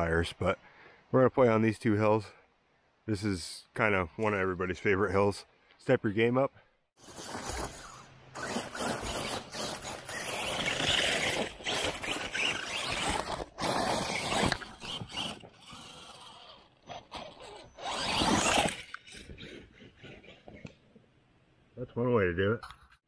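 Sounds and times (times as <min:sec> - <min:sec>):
rc car tires and drivetrain whirring: 0:07.0 - 0:21.0.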